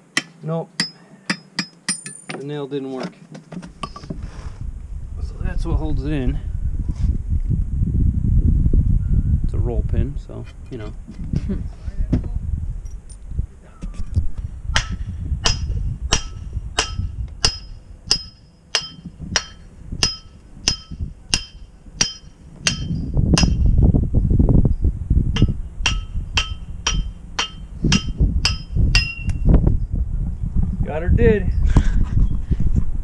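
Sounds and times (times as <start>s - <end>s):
hammer striking metal: 0.2s - 2.5s, 14.8s - 23.7s, 25.4s - 29.4s.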